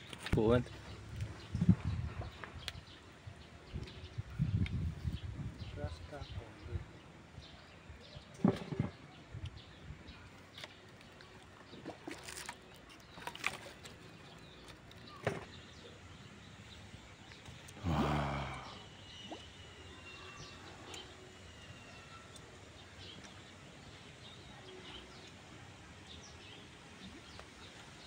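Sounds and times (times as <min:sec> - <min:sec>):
small birds chirping: 0:00.0 - 0:28.0
low rough grunt: 0:17.8 - 0:18.9.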